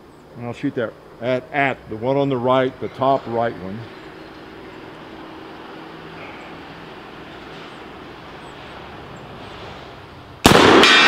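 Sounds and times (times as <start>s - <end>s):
faint background noise: 0.0s - 11.0s
rifle shot: 10.4s - 11.0s.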